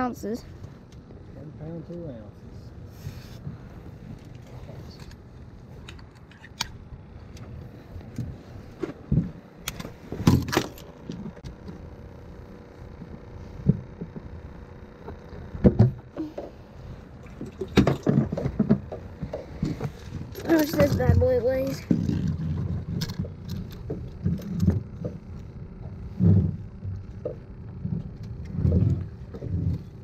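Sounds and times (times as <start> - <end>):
fishing gear knocking and rattling: 17.2 - 25.4.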